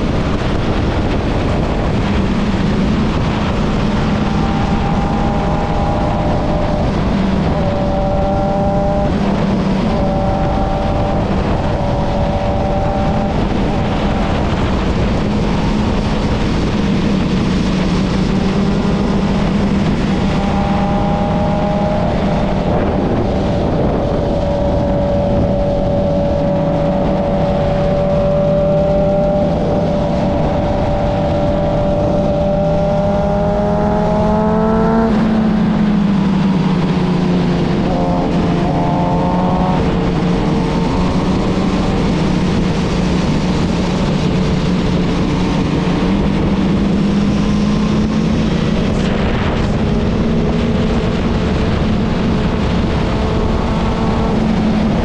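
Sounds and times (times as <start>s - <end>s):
heavy wind and road rush: 0.0s - 55.0s
motorcycle engine running: 0.0s - 55.0s.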